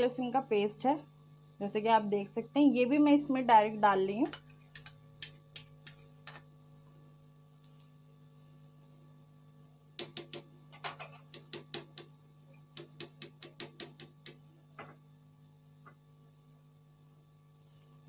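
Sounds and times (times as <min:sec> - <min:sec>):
faint steady hum: 0:00.0 - 0:18.0
metal spoon tapping a pot: 0:04.2 - 0:06.5.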